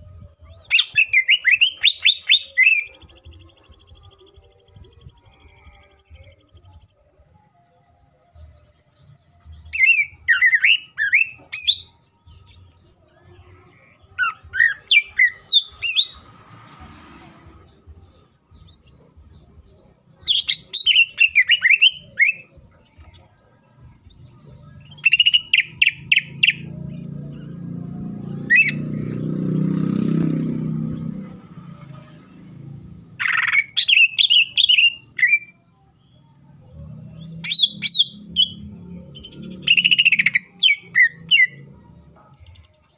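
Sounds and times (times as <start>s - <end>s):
bird singing whistles and chirps: 0.4s - 5.1s, 8.6s - 13.0s, 13.8s - 16.7s, 17.6s - 23.4s, 24.1s - 26.8s, 28.3s - 29.0s, 33.2s - 36.1s, 37.2s - 41.7s.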